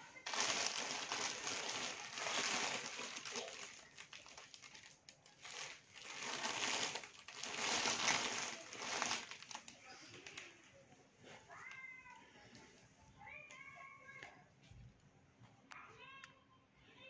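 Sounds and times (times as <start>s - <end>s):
plastic wrapping crinkling: 0.0s - 11.9s.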